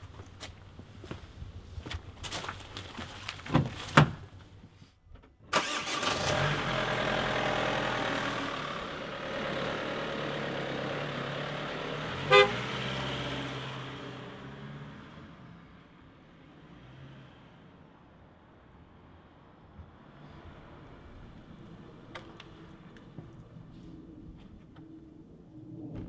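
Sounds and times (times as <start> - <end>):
footsteps: 0.0 - 4.5
car horn toot: 12.2 - 12.8.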